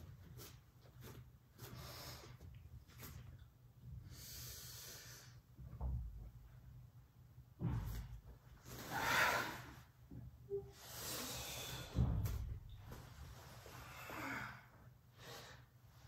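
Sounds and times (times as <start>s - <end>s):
dull thump: 7.6s - 8.1s
person breathing deeply: 8.7s - 9.9s, 10.7s - 12.1s.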